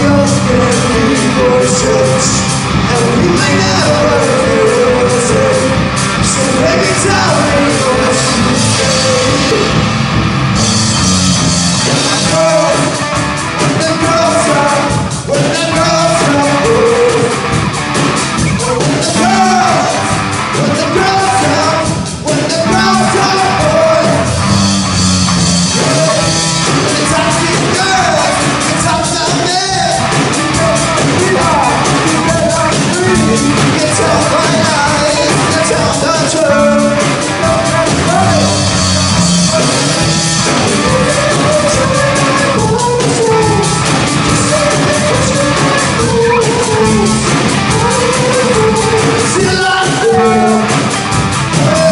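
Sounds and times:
person singing: 0.0 - 10.0, 11.8 - 24.6, 25.4 - 51.9
drums: 0.0 - 51.9
electric guitar: 0.0 - 51.9
keyboard: 0.0 - 51.9
live rock band playing: 0.0 - 51.9.

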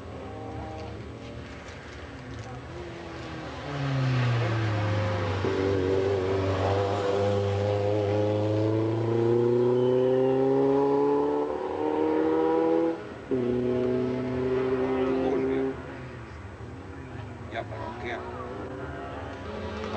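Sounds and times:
race car engine accelerating: 2.7 - 15.9, 17.7 - 19.9.

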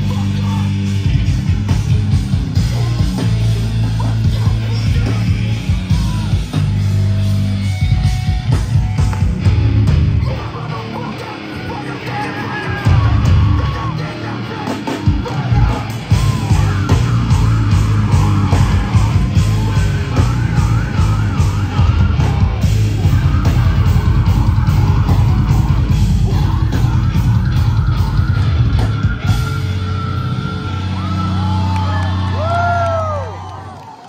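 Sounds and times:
punk band playing live: 0.0 - 33.5
person yelling vocals: 4.4 - 6.6.

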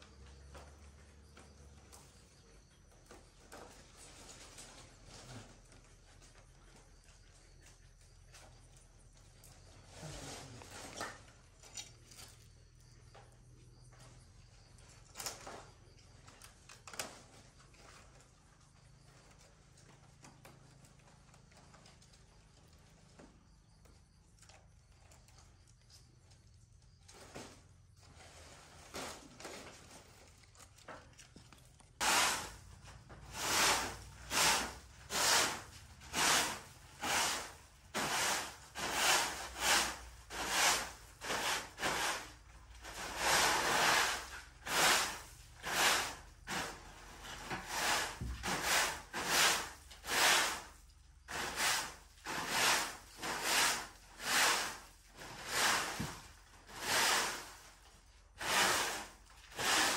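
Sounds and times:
rasping scraping strokes: 32.0 - 32.6, 33.3 - 42.3, 42.9 - 57.7, 58.4 - 59.9.

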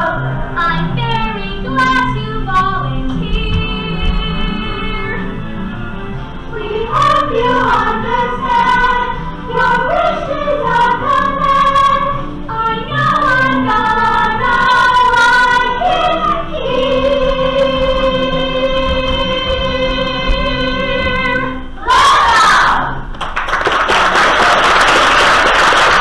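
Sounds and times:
girls singing together: 6.5 - 23.0.

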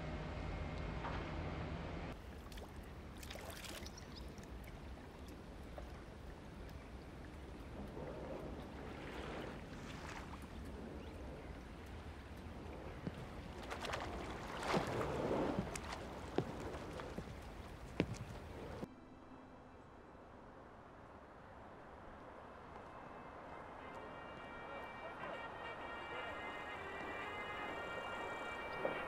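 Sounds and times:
water swishing from oars: 2.1 - 18.9.

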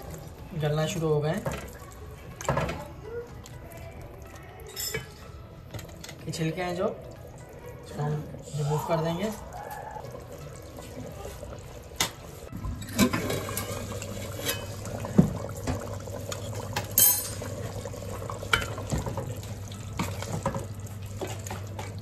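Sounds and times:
gravy simmering and bubbling: 0.0 - 22.0.

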